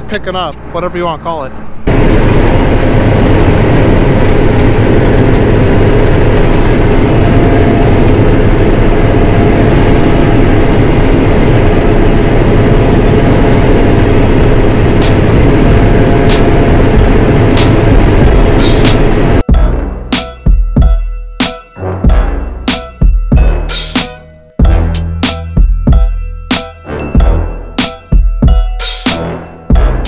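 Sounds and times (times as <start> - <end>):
combine harvester rumbling: 0.0 - 20.4.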